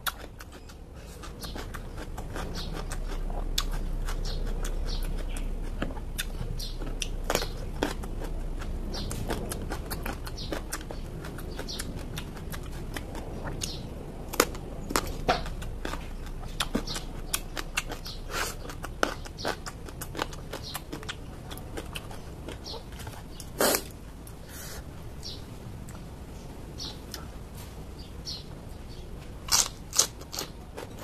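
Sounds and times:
chewing crisp raw vegetables: 0.0 - 24.4, 29.4 - 31.0.

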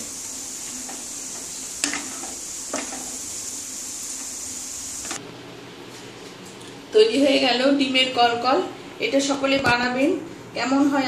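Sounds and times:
dough sizzling in hot oil: 0.0 - 5.2.

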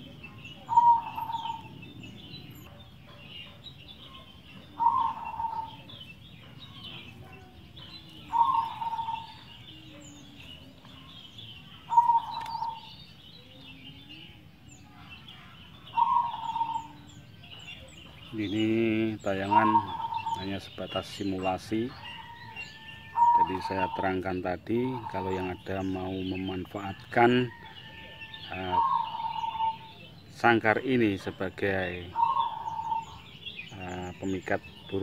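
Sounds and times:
dove cooing: 0.0 - 11.1, 11.7 - 12.9, 15.9 - 17.0, 19.0 - 26.7, 27.5 - 30.2, 31.3 - 35.0
small birds chirping: 0.0 - 35.0.

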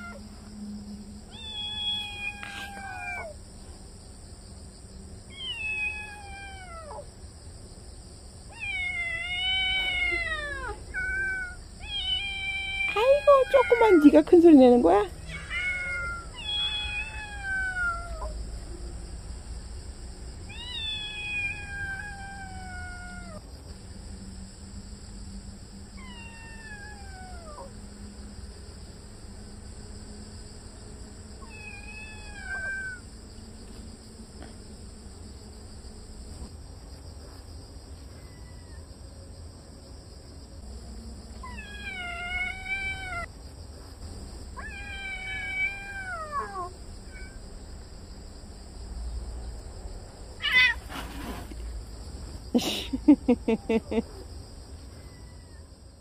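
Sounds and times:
kitten meowing: 1.4 - 3.3, 15.3 - 18.3, 20.5 - 23.4, 31.4 - 33.0, 44.6 - 47.4.

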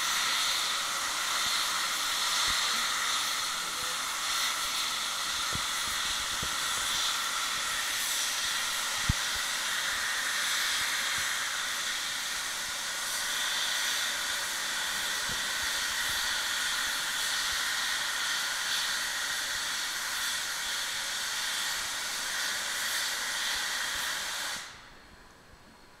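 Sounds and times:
steam locomotive hissing: 0.0 - 25.9.

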